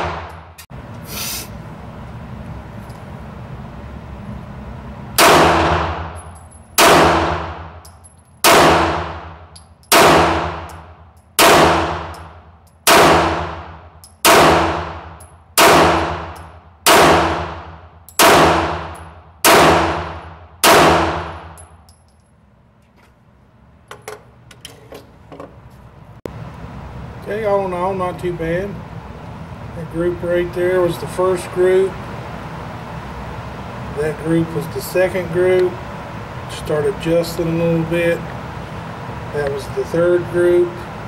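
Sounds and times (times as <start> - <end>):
pistol shots echoing indoors: 5.2 - 7.8, 8.4 - 21.7.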